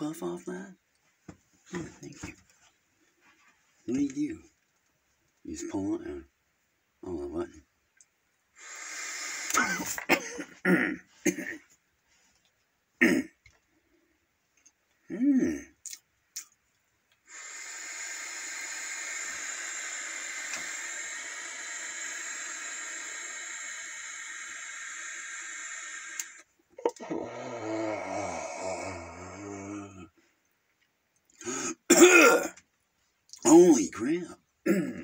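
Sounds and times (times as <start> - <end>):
vape drag hiss: 8.6 - 10.0, 17.2 - 27.0
short vocal noises: 8.6 - 11.0, 17.3 - 30.2.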